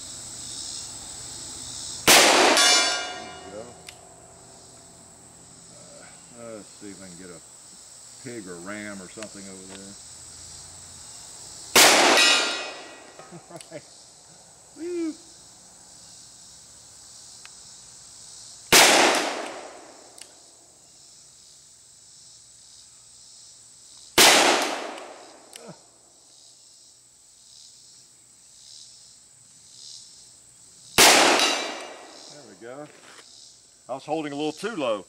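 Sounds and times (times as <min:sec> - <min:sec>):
revolver shots echoing: 0:02.1 - 0:03.8, 0:11.8 - 0:13.1, 0:18.8 - 0:19.8, 0:31.0 - 0:32.1.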